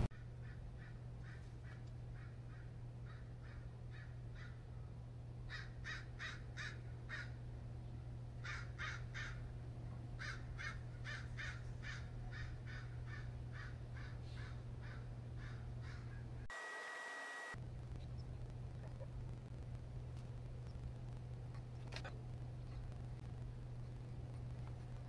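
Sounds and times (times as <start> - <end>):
low hum: 0.0 - 25.0
crows cawing: 0.4 - 4.6, 5.5 - 7.4, 8.4 - 9.5, 10.2 - 16.2.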